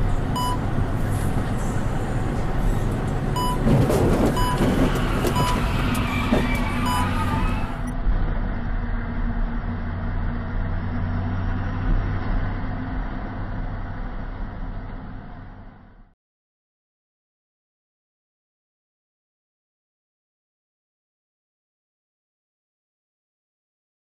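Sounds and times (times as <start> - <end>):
truck engine drone in cab: 0.0 - 16.2
short electronic beeps: 0.4 - 0.7, 3.4 - 3.7, 4.4 - 4.7, 5.3 - 5.7, 6.8 - 7.5.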